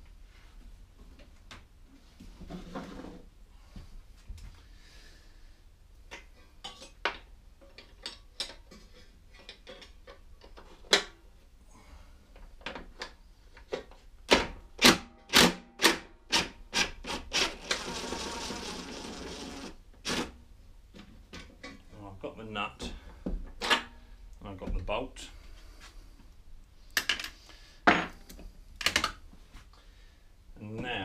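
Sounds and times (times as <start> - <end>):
cordless impact driver running: 17.4 - 20.2.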